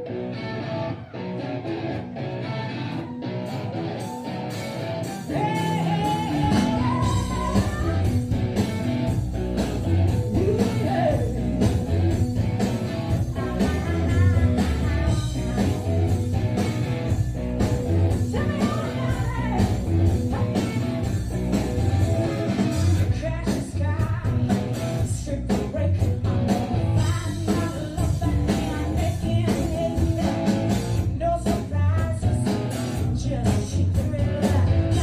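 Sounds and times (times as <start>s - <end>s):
rock band playing live: 0.0s - 35.0s
woman singing: 5.3s - 8.2s, 13.2s - 16.1s, 18.2s - 20.7s, 27.0s - 30.6s, 31.2s - 32.6s, 33.2s - 35.0s.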